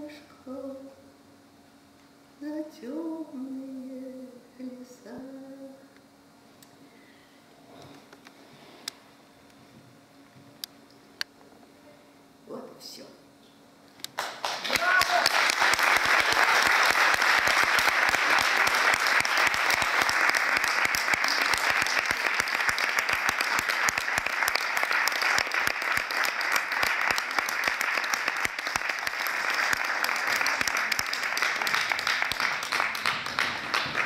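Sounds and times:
audience applause: 14.2 - 34.0.

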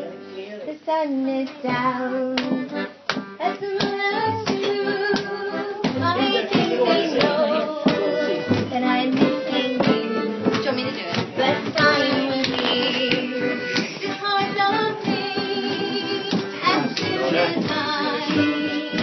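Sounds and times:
accordion chords: 0.0 - 19.0
girl singing a slow ballad: 0.8 - 2.6
frame drum beats: 1.7 - 19.0.

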